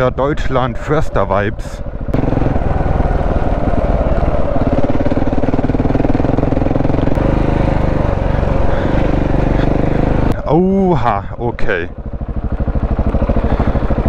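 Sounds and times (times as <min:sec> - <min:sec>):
motorcycle engine running: 0:01.8 - 0:14.0.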